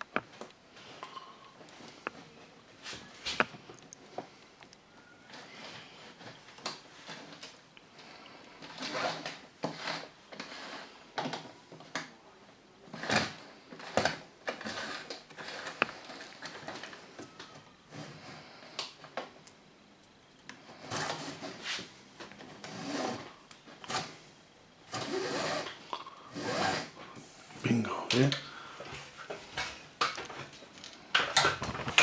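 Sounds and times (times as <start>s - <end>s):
curtain cord scraping: 5.0s - 11.9s, 12.9s - 19.2s, 20.6s - 24.3s, 24.9s - 27.7s, 28.8s - 32.0s.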